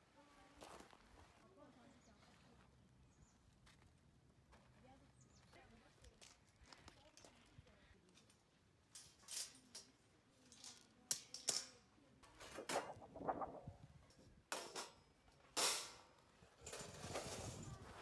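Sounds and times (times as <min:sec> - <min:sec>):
metal parts clinking and scraping: 0:08.2 - 0:12.5.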